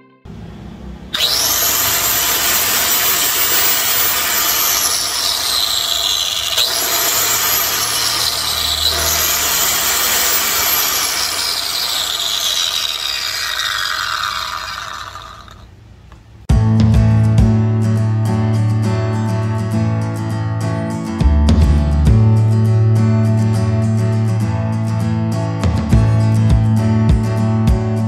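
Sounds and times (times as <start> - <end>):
electric cutter motor whining: 0.3 - 15.8.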